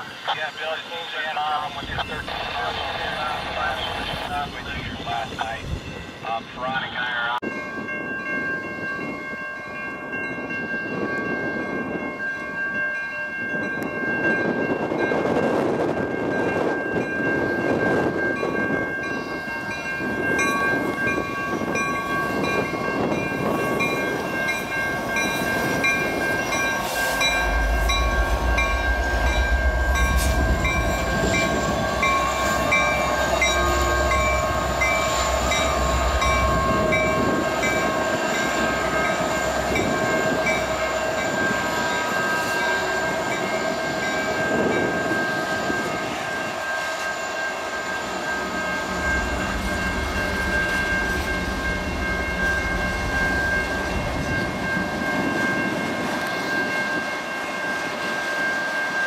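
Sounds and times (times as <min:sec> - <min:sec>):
locomotive engine rumble: 0:00.1 - 0:07.0, 0:18.6 - 0:56.6
crossing signal bell ringing: 0:07.4 - 0:59.0.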